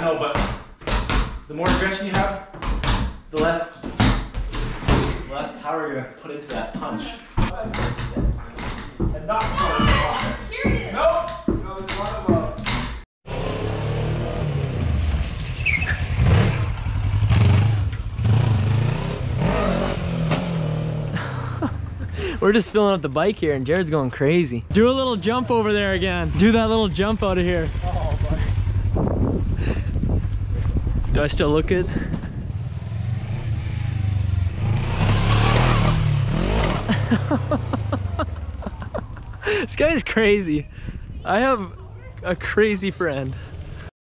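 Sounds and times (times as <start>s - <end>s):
motorcycle engine revving: 13.3s - 21.6s, 25.9s - 31.6s, 32.2s - 39.2s.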